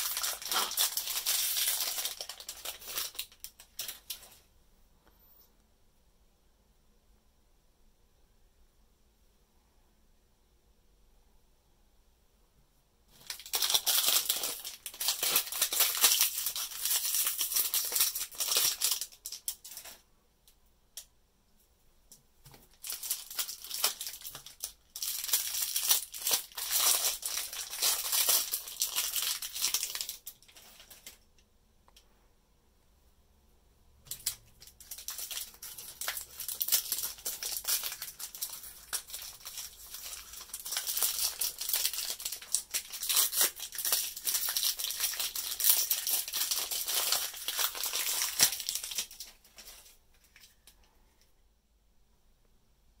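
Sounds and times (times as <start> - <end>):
plastic wrapper crackling: 0.0 - 4.4, 13.1 - 20.0, 22.5 - 31.3, 34.1 - 50.8.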